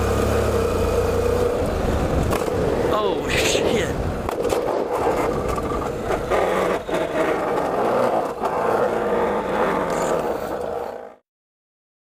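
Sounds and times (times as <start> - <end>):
motorcycle engine running: 0.0 - 2.8
wind rush: 1.4 - 10.6
tyres scraping over gravel: 3.6 - 11.1.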